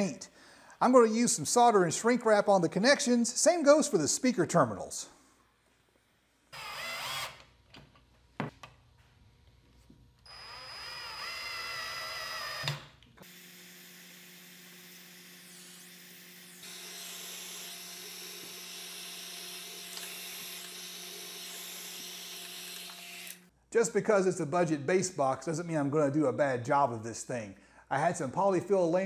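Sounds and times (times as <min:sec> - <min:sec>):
cordless drill driving screws: 0:06.6 - 0:07.5, 0:10.3 - 0:13.4, 0:16.6 - 0:23.5.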